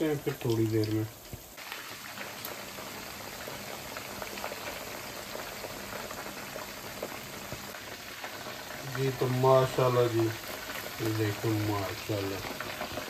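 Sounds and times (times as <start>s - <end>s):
chicken deep-frying in oil: 0.0s - 13.0s.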